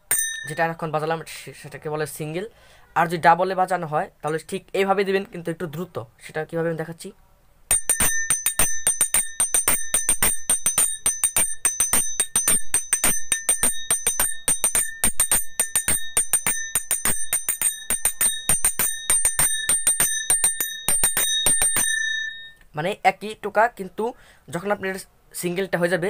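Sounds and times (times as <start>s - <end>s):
brass hand cymbals ringing: 0.0s - 0.6s, 7.7s - 22.6s.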